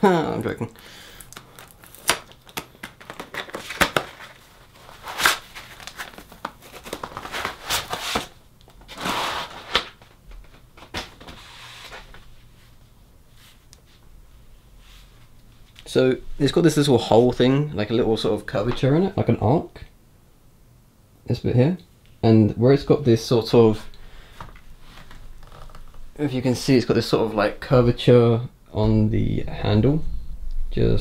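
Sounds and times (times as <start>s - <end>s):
packaging crinkling and tearing: 0.4s - 10.2s, 25.0s - 26.0s.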